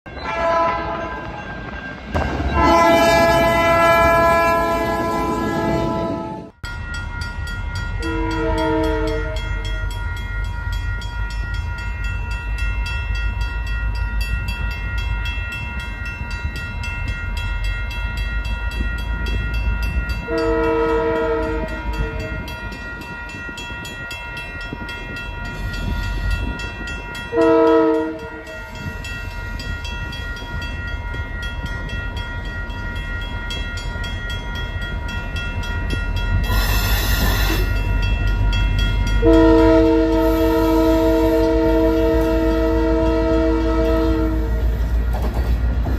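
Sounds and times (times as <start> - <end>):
locomotive horn chords: 0.1 - 1.4, 2.4 - 6.6, 8.0 - 9.7, 20.2 - 22.5, 27.3 - 28.6, 39.1 - 44.8
crossing bell ringing: 0.1 - 45.1
freight train rumbling past: 0.1 - 45.9.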